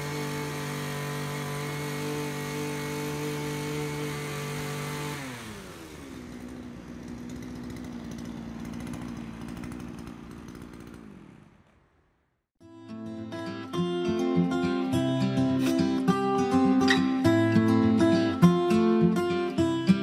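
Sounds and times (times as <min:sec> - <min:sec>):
two-stroke engine running: 0:00.0 - 0:12.3.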